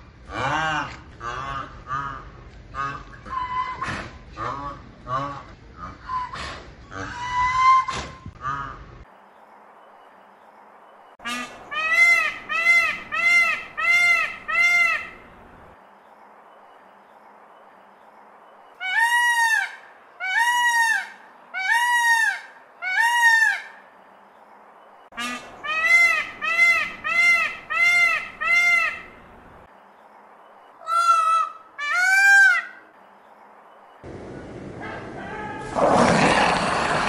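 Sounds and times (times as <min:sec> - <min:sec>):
peacock honking calls: 0:18.8 - 0:23.8, 0:30.8 - 0:32.8.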